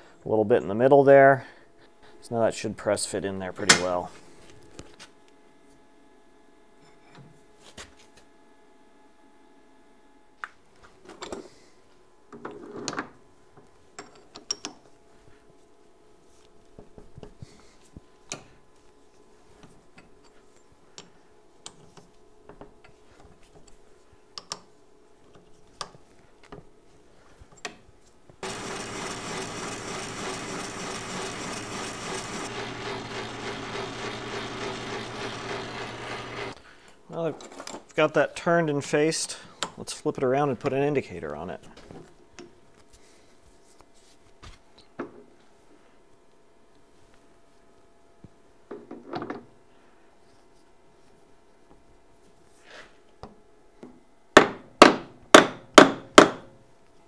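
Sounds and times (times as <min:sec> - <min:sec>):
metal lathe running: 0:28.4 - 0:36.6.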